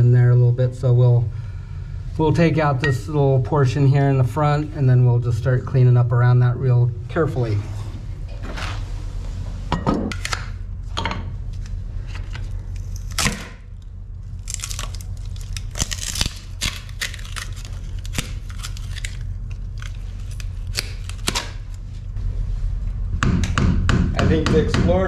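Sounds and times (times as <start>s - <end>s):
steady low hum: 0.0s - 25.0s
pry bar scraping and cracking fiberglass: 14.4s - 21.7s.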